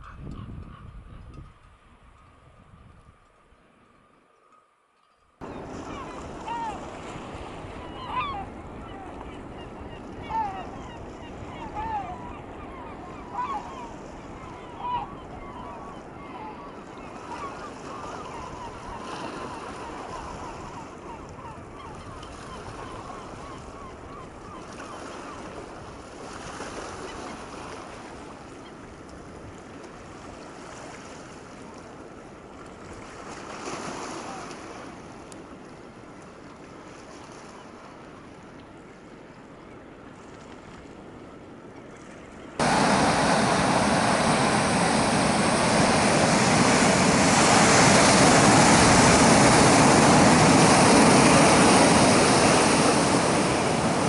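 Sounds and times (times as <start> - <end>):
calm sea wash: 0.0 - 54.0
waves breaking on rocky shore: 5.4 - 21.7, 32.8 - 35.3, 42.6 - 54.0.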